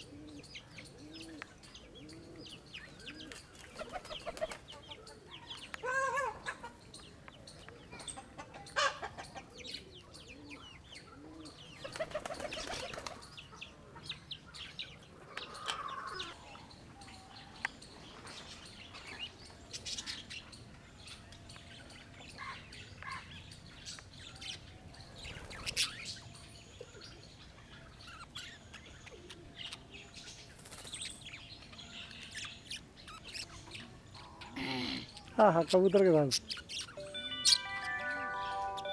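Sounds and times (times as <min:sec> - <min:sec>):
birds chirping and clucking: 0:00.0 - 0:38.9.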